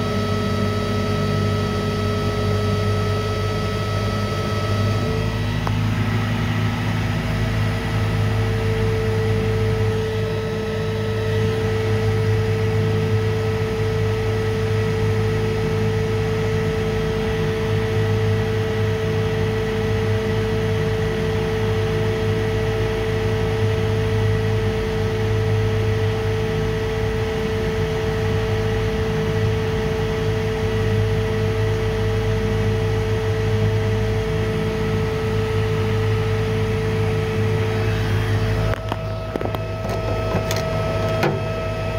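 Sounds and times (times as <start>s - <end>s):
high motor whine: 0.0s - 41.9s
electric motor humming: 35.8s - 41.9s.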